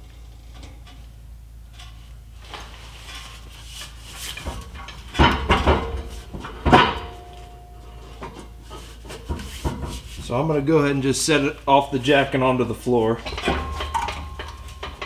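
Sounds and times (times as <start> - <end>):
metal clanking and knocking: 4.3 - 10.5, 13.2 - 15.0
metallic ring: 4.8 - 9.0, 13.2 - 15.0.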